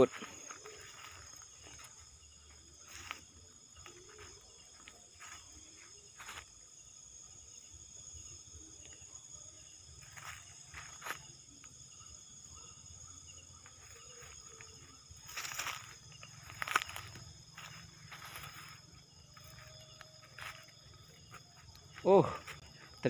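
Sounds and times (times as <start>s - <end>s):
night insects chorus: 0.0s - 23.0s
footsteps on dry leaves: 15.1s - 22.8s.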